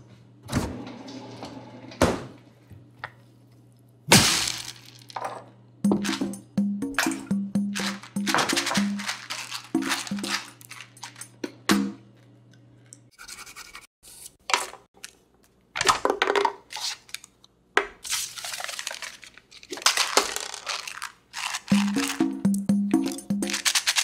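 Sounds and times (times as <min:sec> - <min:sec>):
music: 0:05.8 - 0:12.3, 0:21.7 - 0:24.0
paper crinkling: 0:07.8 - 0:11.2, 0:18.0 - 0:22.1.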